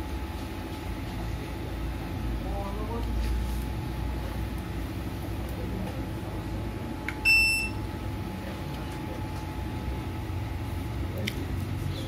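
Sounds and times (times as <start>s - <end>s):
low background hum: 0.0s - 12.0s
short electronic beep: 7.2s - 7.8s.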